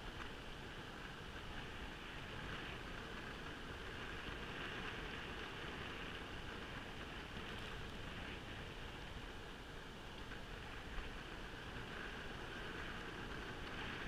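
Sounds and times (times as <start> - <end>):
skateboard wheels rolling on asphalt: 0.0 - 14.0.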